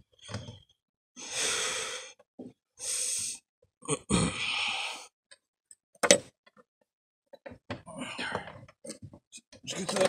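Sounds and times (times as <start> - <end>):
man grunting with effort: 3.9 - 4.7.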